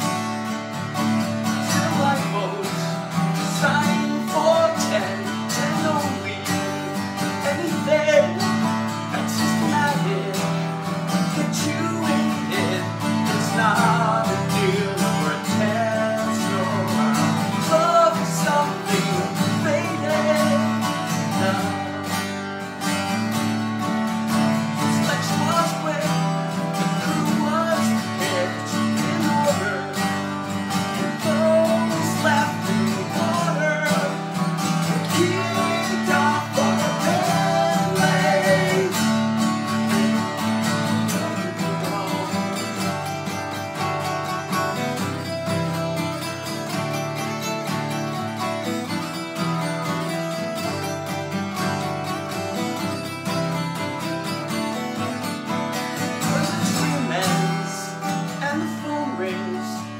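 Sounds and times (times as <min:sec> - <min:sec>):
man singing: 0:00.0 - 0:00.4, 0:01.1 - 0:22.4, 0:24.5 - 0:45.5, 0:55.9 - 0:59.9
acoustic guitars strummed: 0:00.0 - 0:59.9.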